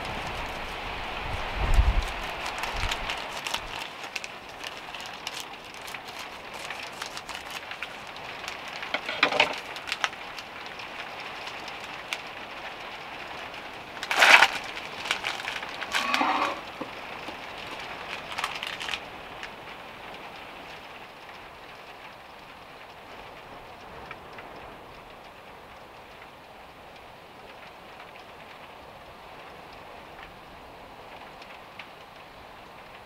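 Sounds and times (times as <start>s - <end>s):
plastic packaging crinkling: 0.0s - 19.6s
rain on a vehicle roof: 0.0s - 33.0s.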